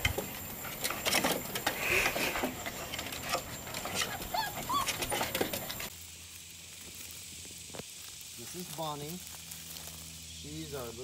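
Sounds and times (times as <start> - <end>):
puppies whining: 0.6 - 5.9.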